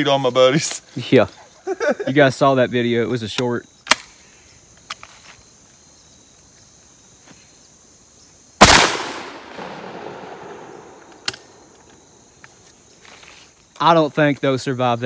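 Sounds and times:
shotgun shot echoing: 8.6 - 11.7.

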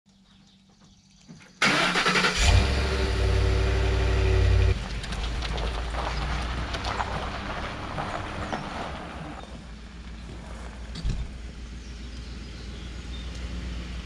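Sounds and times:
pickup truck engine starting: 1.6 - 14.0.

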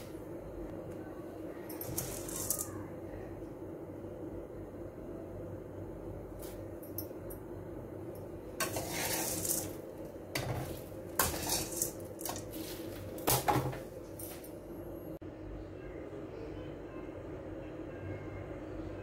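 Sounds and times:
dry lentils rattling in a pan: 1.9 - 2.7, 8.6 - 9.8, 10.5 - 12.7
metal spatula scraping a pan: 8.6 - 9.8, 10.4 - 12.7.

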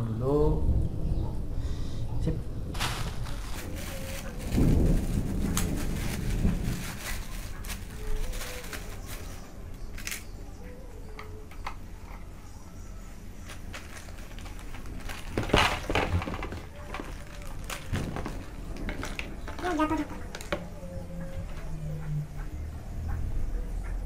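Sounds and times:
plastic bags rustling: 2.7 - 21.6.

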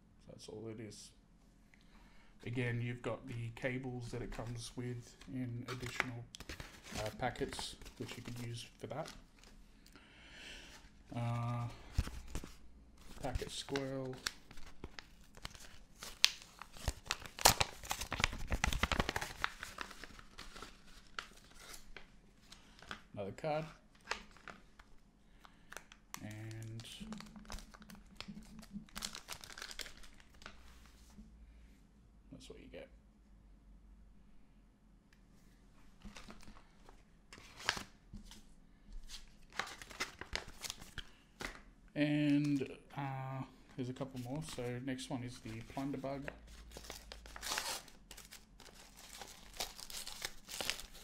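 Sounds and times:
packaging crinkling: 11.4 - 23.1, 24.0 - 25.0, 25.7 - 30.8, 39.4 - 41.6, 45.4 - 51.0.

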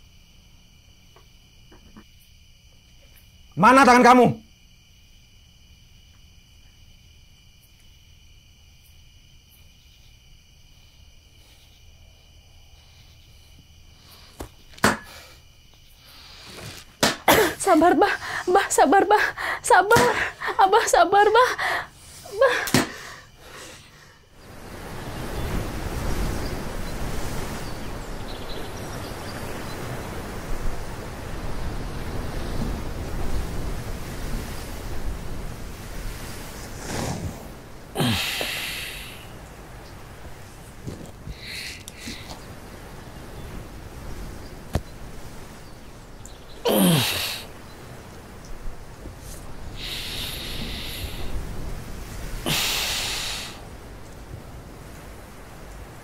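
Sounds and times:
crickets chirring: 0.0 - 56.0
ocean surf rushing: 17.0 - 56.0.

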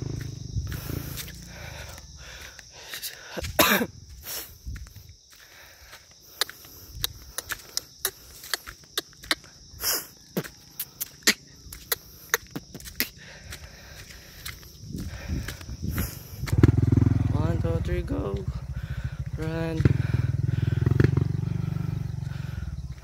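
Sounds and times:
high-pitched insect buzz: 0.0 - 16.5
footsteps on dry leaves: 0.0 - 16.6.

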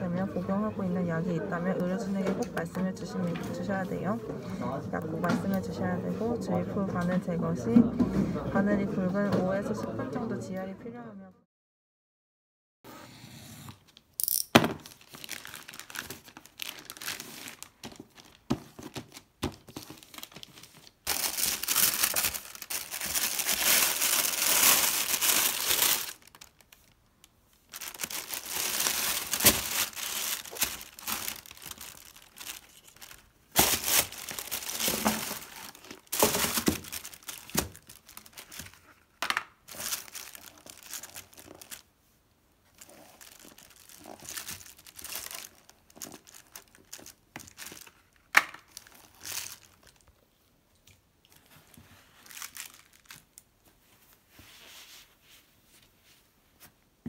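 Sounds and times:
plastic wrapping crinkling and tearing: 14.7 - 41.9, 42.6 - 50.3, 50.9 - 53.6.

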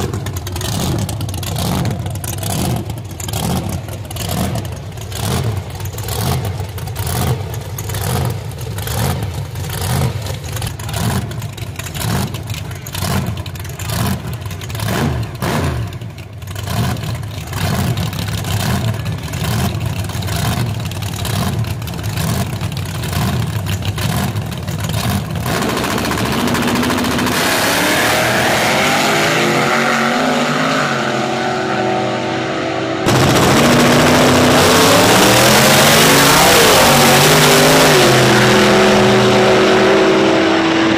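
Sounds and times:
engine idling with lope: 0.0 - 27.4
engines revving: 0.0 - 40.9.

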